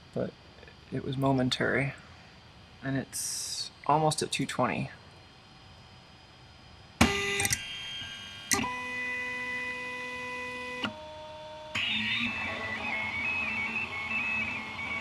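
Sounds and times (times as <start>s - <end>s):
stepper motors whining: 7.0s - 15.0s.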